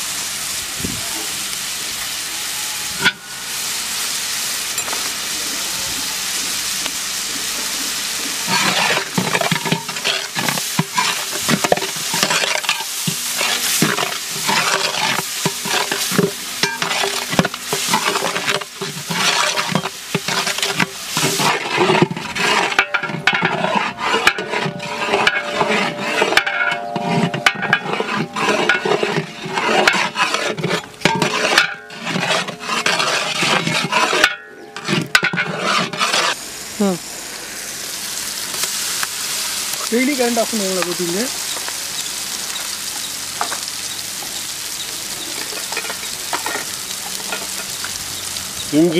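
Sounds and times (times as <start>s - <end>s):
food sizzling in hot oil: 0.0s - 48.9s
metal ladle scraping pot: 8.4s - 36.4s.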